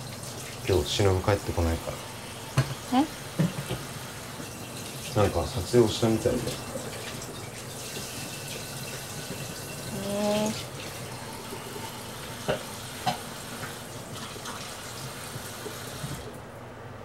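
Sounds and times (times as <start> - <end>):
tap running into sink: 2.5 - 2.8, 3.4 - 4.5, 12.3 - 14.7.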